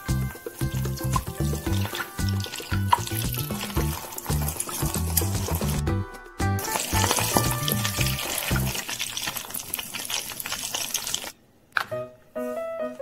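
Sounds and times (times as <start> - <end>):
hot oil sizzling and crackling: 0.0 - 5.9, 6.6 - 11.4
metal spoon moving through oil: 0.3 - 5.9, 6.6 - 11.3.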